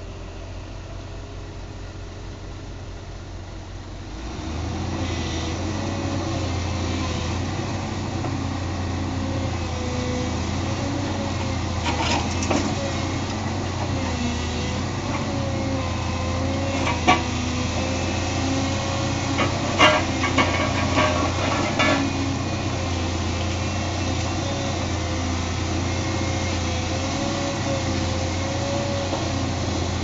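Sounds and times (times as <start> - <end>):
excavator diesel engine running: 0.0 - 30.0
knocks and clatters on rubble: 19.4 - 22.1.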